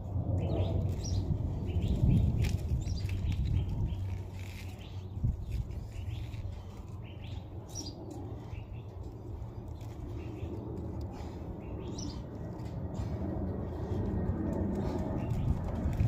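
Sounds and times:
low background rumble: 0.0 - 16.0
birds chirping: 0.4 - 16.0.

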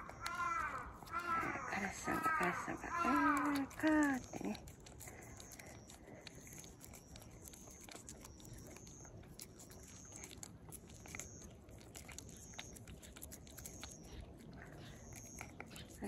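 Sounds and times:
cat licking and chewing: 0.0 - 16.0.

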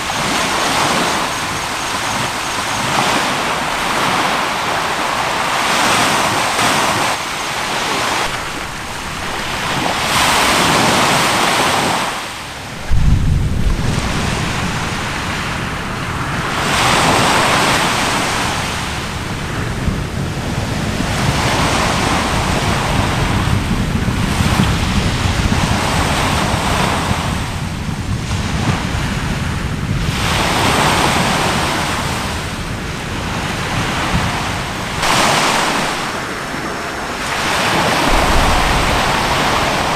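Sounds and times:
waves washing onto shore: 0.0 - 39.9
deep rumble: 8.0 - 11.4, 12.5 - 22.1, 35.0 - 39.9
low thud: 8.2 - 10.7, 12.6 - 19.5, 37.4 - 39.9.

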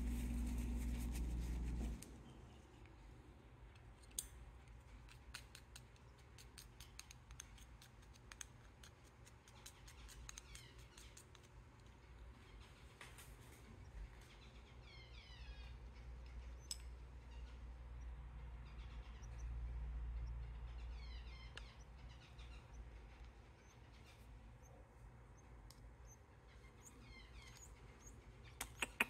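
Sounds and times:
baby birds cheeping: 9.5 - 11.5, 13.7 - 24.8, 25.4 - 29.0.

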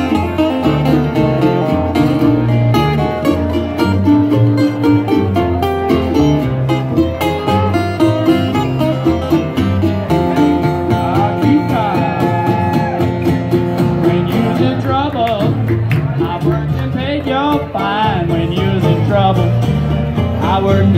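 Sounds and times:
jug band playing: 0.0 - 20.9
man singing: 10.1 - 20.9.

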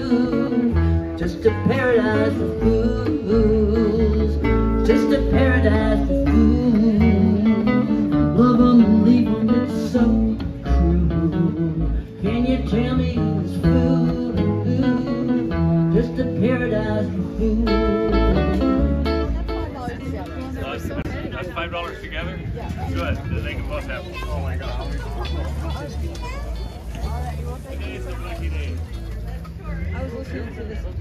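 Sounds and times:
strummed acoustic guitar: 0.0 - 21.0
electric lead guitar: 0.0 - 21.3
electric bass: 0.0 - 31.0.

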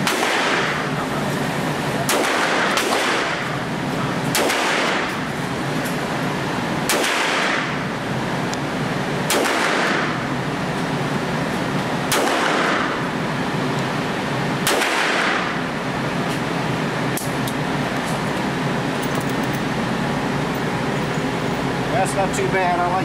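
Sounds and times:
revolver gunshots echoing indoors: 0.0 - 1.0, 2.0 - 5.6, 6.4 - 8.4, 9.0 - 11.4, 12.0 - 13.6, 14.3 - 16.0.

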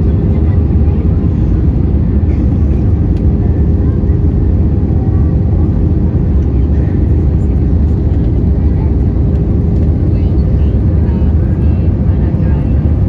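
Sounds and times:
airplane cabin rumble: 0.0 - 13.0.

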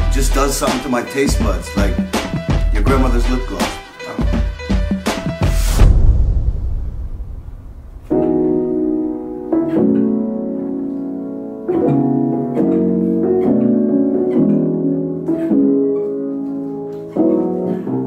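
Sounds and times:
crash cymbal tail: 5.4 - 8.6
piano playing soft chords: 7.9 - 18.0.

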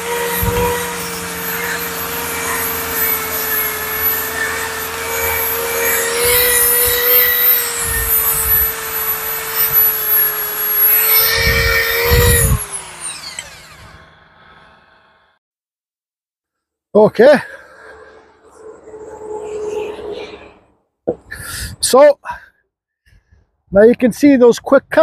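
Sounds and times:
brush bristles scrubbing wood: 0.0 - 13.6
cordless drill motor whine: 0.0 - 15.4.

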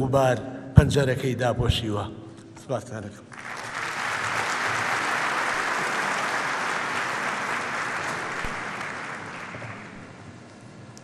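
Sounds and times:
audience applauding: 3.3 - 10.2.

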